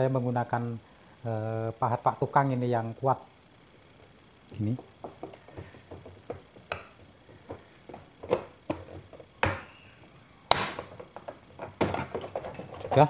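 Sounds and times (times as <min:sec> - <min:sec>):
plastic cracking: 0:04.5 - 0:13.0
chisel prying at plastic cover: 0:05.0 - 0:09.8, 0:10.5 - 0:13.0.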